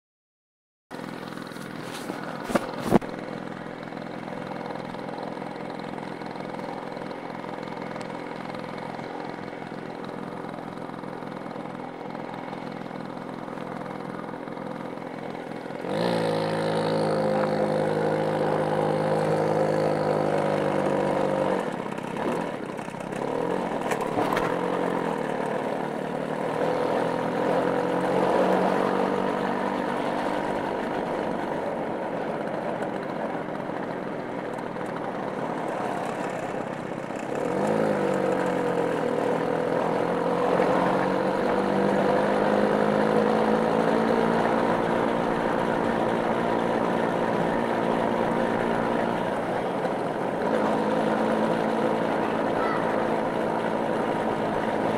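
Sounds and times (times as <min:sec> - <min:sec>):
small motorcycle engine running: 0:00.9 - 0:54.9.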